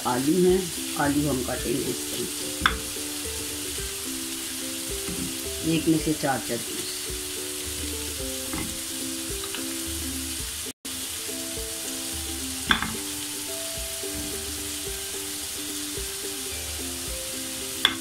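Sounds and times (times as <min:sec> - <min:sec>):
meat sizzling in a pan: 0:00.0 - 0:18.0
soft melodic music: 0:00.0 - 0:18.0.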